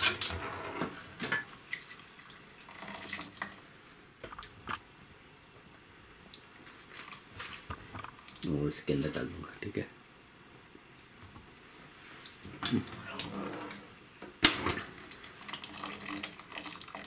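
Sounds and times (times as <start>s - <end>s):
water dripping and splashing: 1.6s - 3.6s, 6.3s - 9.2s, 15.1s - 17.0s.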